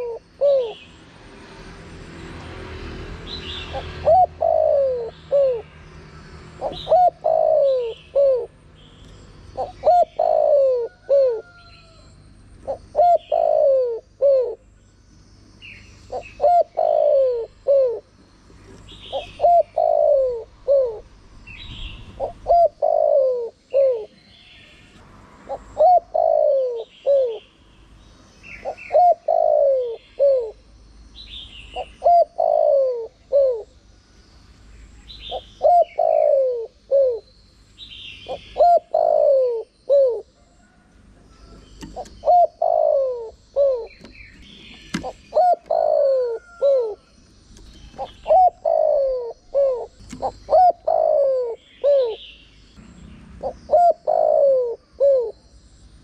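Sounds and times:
dove cooing: 0.0 - 0.9, 3.5 - 5.7, 6.5 - 8.6, 9.5 - 14.7, 16.0 - 24.2, 25.5 - 27.5, 28.5 - 30.6, 31.7 - 33.8, 35.1 - 37.3, 38.2 - 52.4, 53.4 - 55.5
small birds chirping: 0.0 - 56.0.

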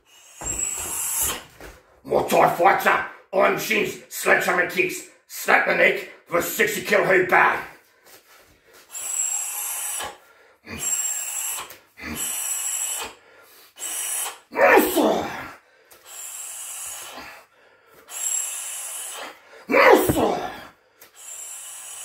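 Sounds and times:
forceful hissing exhalations: 10.8 - 14.5, 16.0 - 19.4, 21.1 - 22.0
man grunting: 14.5 - 15.6, 19.7 - 20.7.

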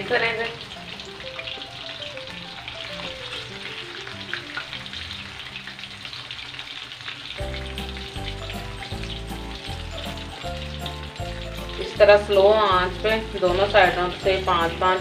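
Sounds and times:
background music: 0.0 - 6.1, 7.4 - 15.0
fish sizzling in hot oil: 0.0 - 15.0.

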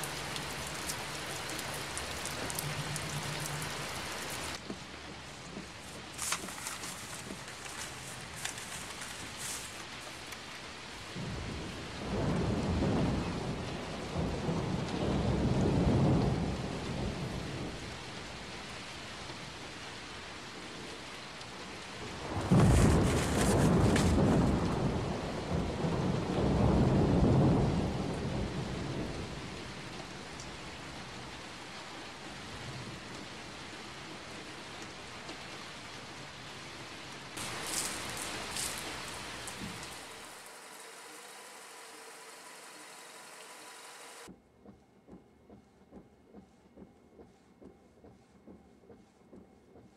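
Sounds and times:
thunder rumbling: 0.0 - 4.6, 11.1 - 18.5, 22.0 - 31.1, 37.4 - 40.4
steady rain: 0.0 - 44.3.

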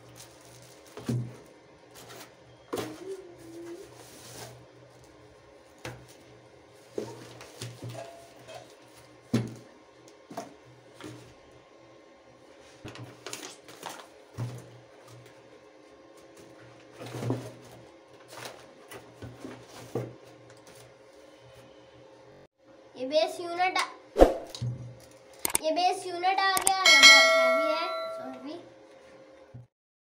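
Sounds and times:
packaging rustling: 0.0 - 3.0.

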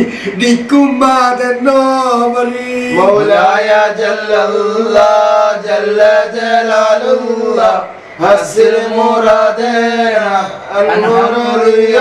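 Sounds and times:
man chanting devotional melody: 0.0 - 12.0.

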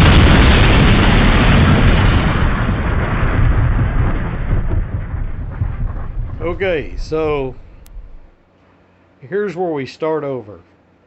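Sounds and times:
rumbling explosion blast: 0.0 - 8.4.

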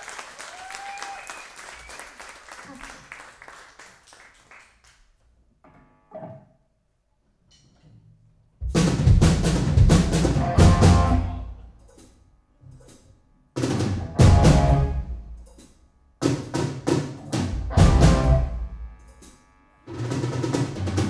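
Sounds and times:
audience applause: 0.0 - 5.0
rock band full-band hits: 8.7 - 11.4, 13.6 - 15.2, 16.2 - 18.6.

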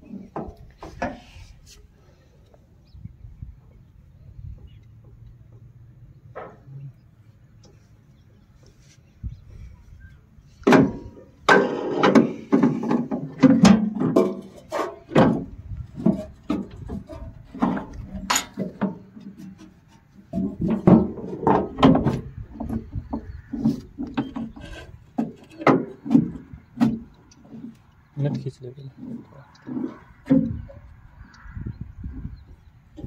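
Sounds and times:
metal clinks and knocks: 17.5 - 19.0.

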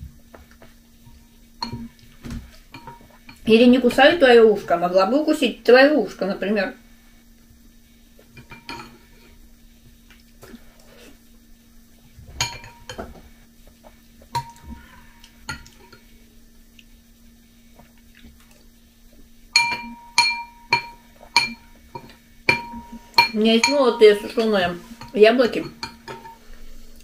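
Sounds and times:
faint steady hum: 0.0 - 27.0
spoon clinking on glass bowl: 19.6 - 26.4.

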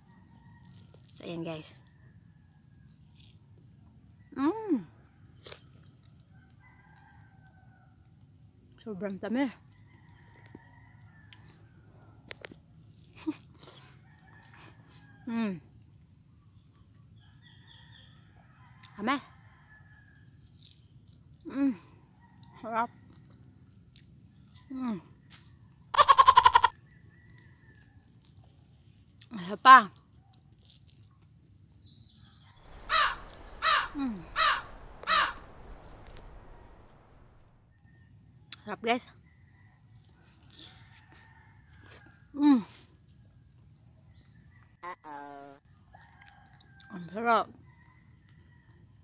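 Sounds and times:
insects chirping: 0.0 - 49.0
distant rooster crowing: 6.3 - 8.2, 9.8 - 11.9, 17.2 - 20.3, 32.3 - 38.1, 40.6 - 42.2
bird calls falling in pitch: 32.6 - 37.5.

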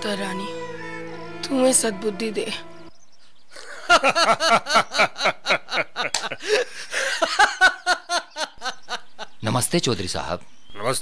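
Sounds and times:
person laughing breathily: 5.7 - 7.5.

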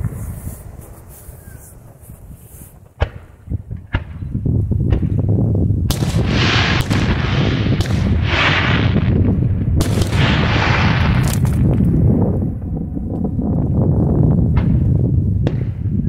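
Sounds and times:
hissing crackle: 0.0 - 4.8, 5.9 - 13.8
sharp fireworks cracks: 0.0 - 13.6, 14.3 - 16.0
fireworks bangs: 0.0 - 16.0.

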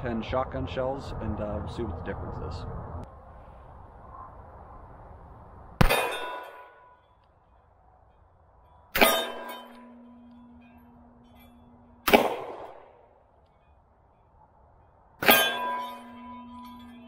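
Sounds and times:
steel plate target ringing: 5.8 - 7.2, 8.6 - 17.0
revolver shots: 12.0 - 12.9.

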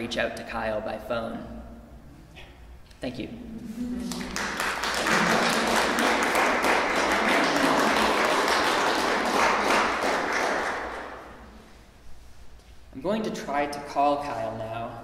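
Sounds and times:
audience applauding: 4.0 - 11.4.

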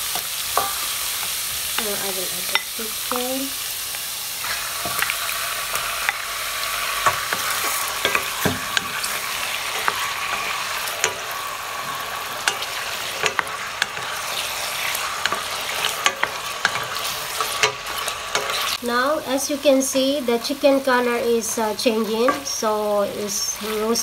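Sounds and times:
chicken sizzling in oil: 0.0 - 24.0
spatula scraping metal pot: 11.9 - 18.8.

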